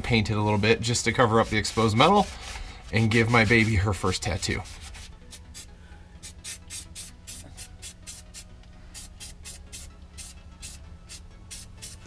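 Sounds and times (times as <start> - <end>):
spray-paint can hissing bursts: 4.7 - 12.0.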